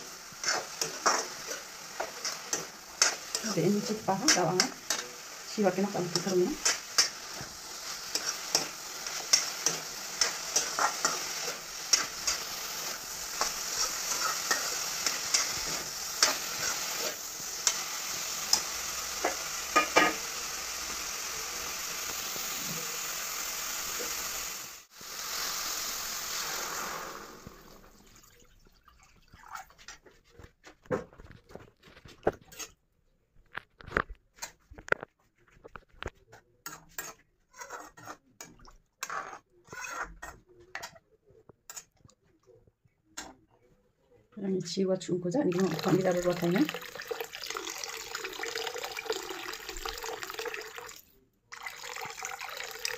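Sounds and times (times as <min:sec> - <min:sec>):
meat sizzling in oil: 0:00.0 - 0:28.0, 0:45.5 - 0:52.9
metal spoon scraping a pan: 0:00.3 - 0:20.5, 0:31.9 - 0:32.8, 0:35.7 - 0:41.1, 0:41.7 - 0:42.1.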